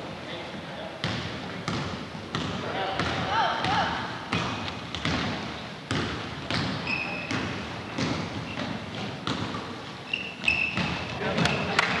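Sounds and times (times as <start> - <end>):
basketball bouncing on gym floor: 1.0 - 9.8, 10.4 - 11.6
short high squeak: 6.8 - 7.3, 10.1 - 10.9.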